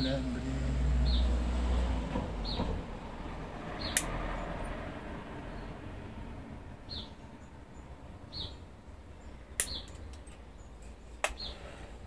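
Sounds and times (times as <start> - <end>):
bird chirping: 1.0 - 1.4, 3.7 - 4.5, 6.8 - 11.8
wire cutters snipping: 3.9 - 4.2.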